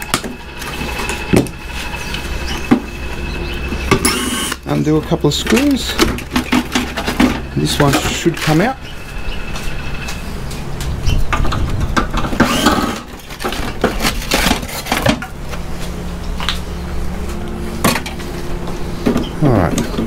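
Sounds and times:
metallic clanks and scraping: 0.0 - 20.0.

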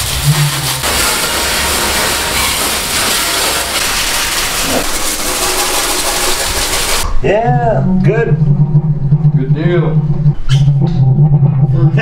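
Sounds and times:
hose spraying onto steel floor: 0.0 - 7.0.

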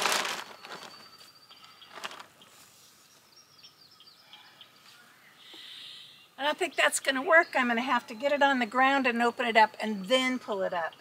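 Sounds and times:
tarp rustling: 0.0 - 2.8
small birds chirping: 0.4 - 11.0.

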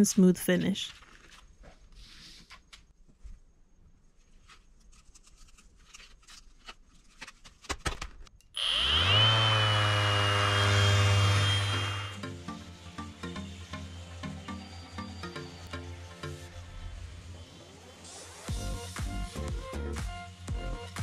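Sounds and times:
orbital sander whining: 8.6 - 15.6.

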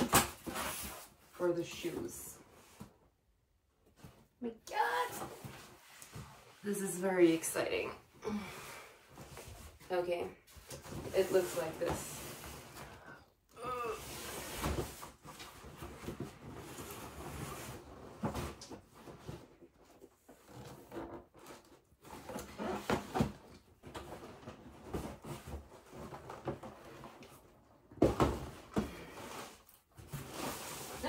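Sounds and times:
cardboard rustling and scraping: 0.0 - 3.0, 9.2 - 13.0, 14.1 - 31.0.

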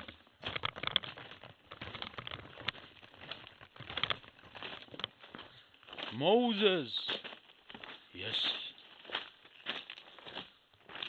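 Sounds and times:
footsteps on forest path: 0.0 - 11.0.

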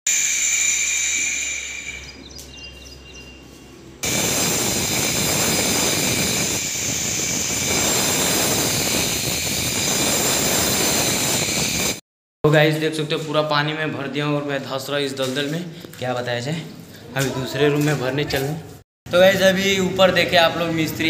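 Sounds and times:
electric cutter whining: 0.1 - 2.8, 4.0 - 12.0.

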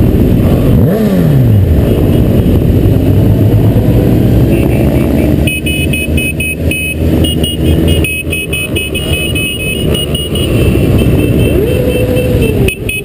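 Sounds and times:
low wind rumble: 0.0 - 5.4
motorcycle engines running: 0.0 - 13.0
rapid high beeping: 5.4 - 13.0.

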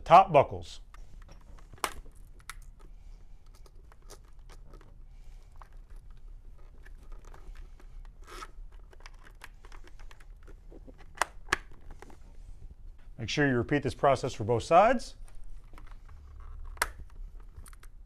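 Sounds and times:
strap rubbing through plastic buckle: 0.9 - 12.7, 15.3 - 18.0
strap scraping: 5.9 - 11.2.

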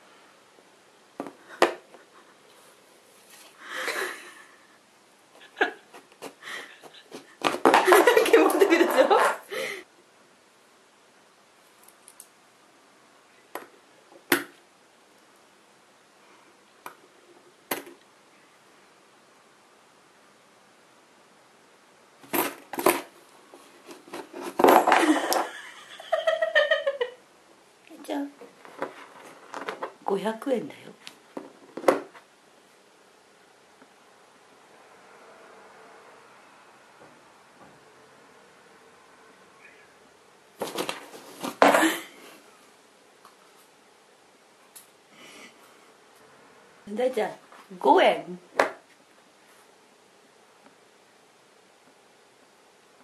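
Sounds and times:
coins scraping on cardboard: 23.8 - 25.0
person's voice: 27.9 - 28.4, 30.0 - 31.0, 46.9 - 48.5
cat paw scraping rustle: 40.6 - 41.6.

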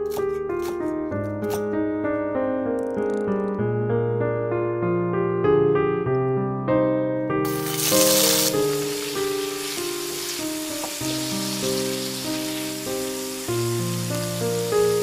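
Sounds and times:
soft piano music: 0.0 - 15.0
shrimp sizzling in oil: 7.5 - 15.0.

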